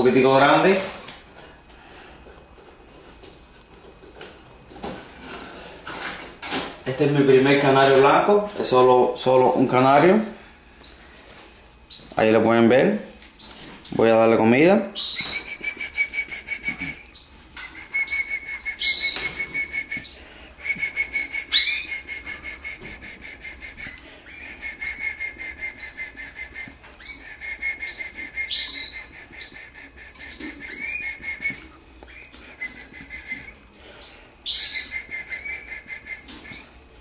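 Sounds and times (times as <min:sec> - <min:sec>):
bird nestling peeping: 0:15.0 - 0:20.2, 0:20.8 - 0:36.8.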